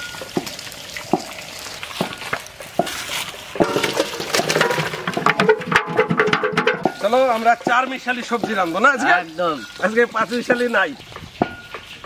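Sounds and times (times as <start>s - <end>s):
metal pot knocks and clinks: 3.6s - 9.9s.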